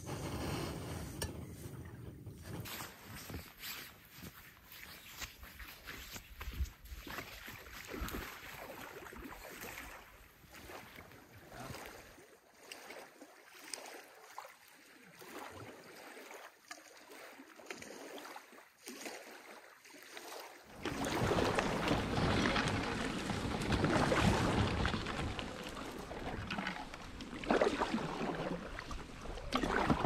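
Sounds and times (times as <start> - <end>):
water splashing and lapping: 0.9 - 30.0.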